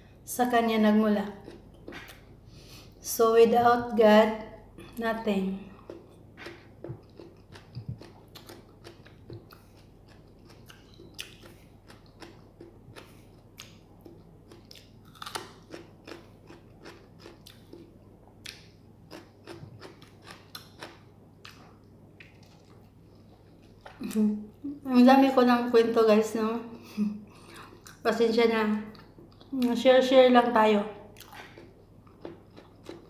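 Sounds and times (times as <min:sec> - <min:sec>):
person chewing food: 0:01.3 - 0:03.0, 0:05.7 - 0:24.6, 0:27.2 - 0:28.1, 0:28.9 - 0:29.6, 0:31.1 - 0:33.0.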